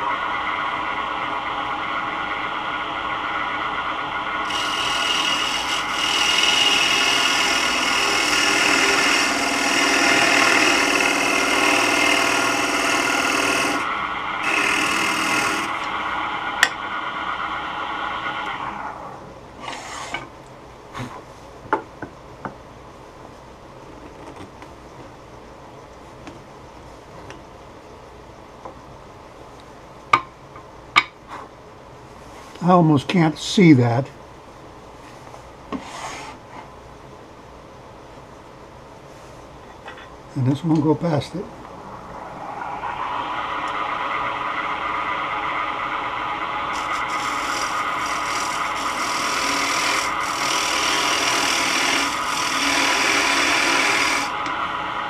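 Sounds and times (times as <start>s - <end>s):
wood lathe humming: 0.0s - 19.0s, 42.6s - 54.6s
tool scraping spinning wood: 4.4s - 16.2s, 46.6s - 54.4s.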